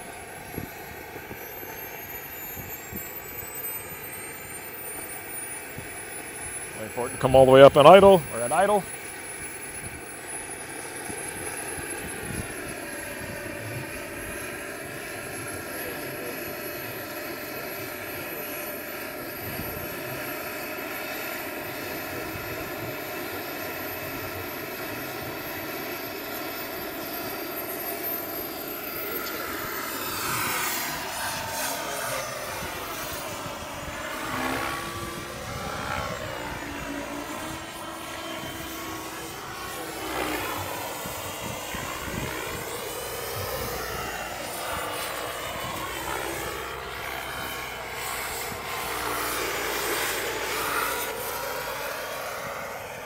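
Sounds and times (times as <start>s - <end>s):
model helicopter turbine whine: 0.0s - 53.0s.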